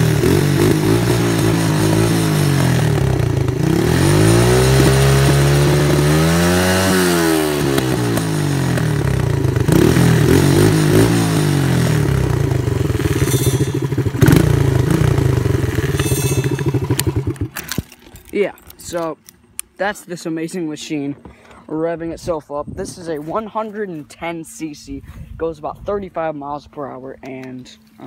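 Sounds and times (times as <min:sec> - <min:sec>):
small engine revving: 0:00.0 - 0:17.9.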